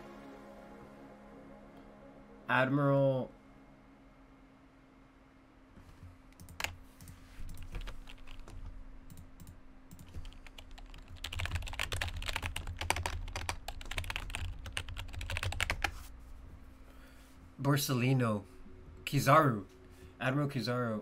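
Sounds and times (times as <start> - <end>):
typing on computer keyboard: 6.4 - 15.9.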